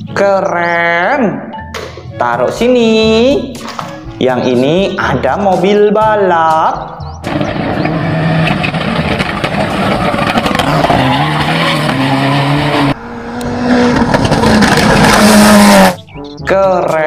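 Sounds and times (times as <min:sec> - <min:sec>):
tyres skidding: 0:07.2 - 0:16.4.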